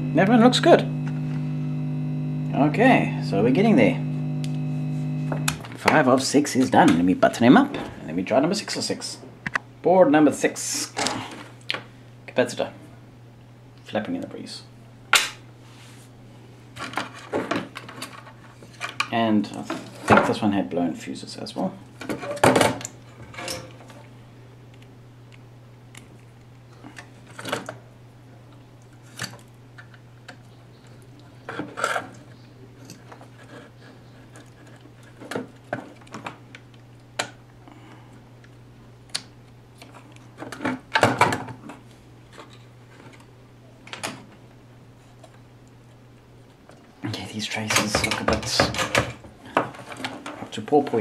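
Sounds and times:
steady low hum: 0.0 - 16.8.

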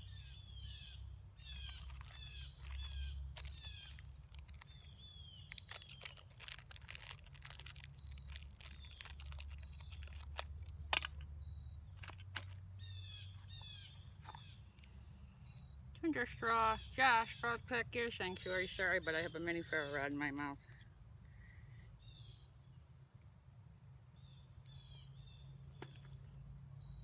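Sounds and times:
songbird singing: 0.0 - 27.0
hands clicking and rustling tinder: 1.6 - 11.3, 11.9 - 12.6.

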